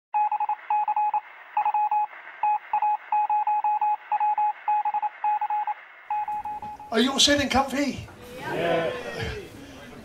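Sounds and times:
morse code beeps: 0.2 - 7.1.

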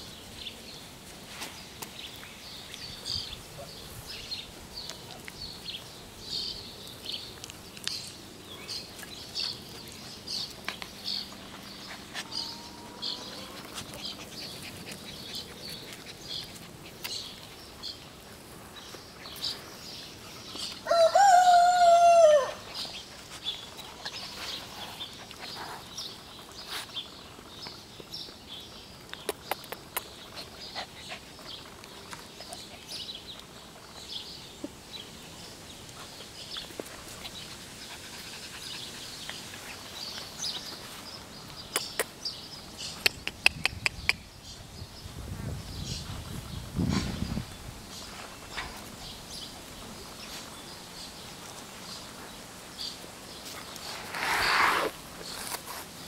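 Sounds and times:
small birds chirping: 0.0 - 56.0
rooster crowing: 20.8 - 22.6.

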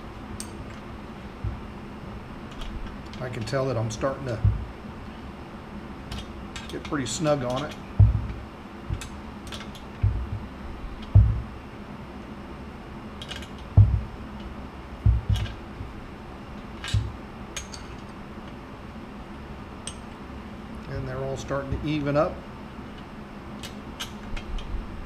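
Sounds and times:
dull knocks: 1.4 - 1.7, 4.4 - 4.8, 8.0 - 9.1, 10.0 - 10.5, 11.1 - 11.6, 13.8 - 14.2, 15.0 - 16.0, 16.9 - 17.2.

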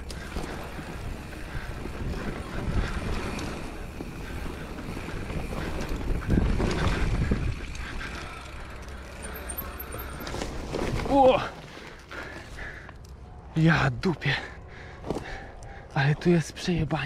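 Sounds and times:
wind rushing over microphone: 0.0 - 8.1.

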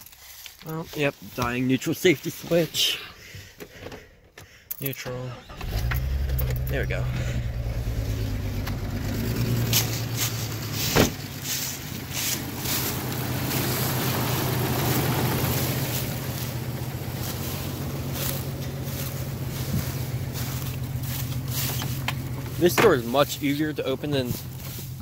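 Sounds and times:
car engine idling: 0.0 - 25.0
sharp thump: 10.8 - 11.3.

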